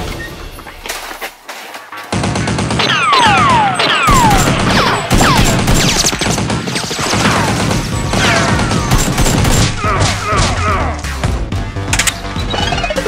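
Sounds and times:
blaster gunshots and impacts: 2.1s - 10.8s
background music: 7.2s - 13.0s.

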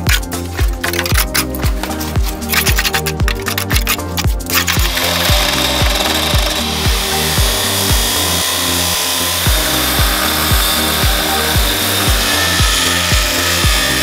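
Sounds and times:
background music with beat: 0.0s - 14.0s
angle grinder cutting steel: 4.6s - 14.0s.

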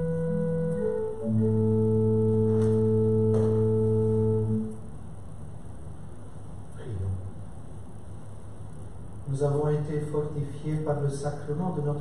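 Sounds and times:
organ playing chords: 0.0s - 4.9s.

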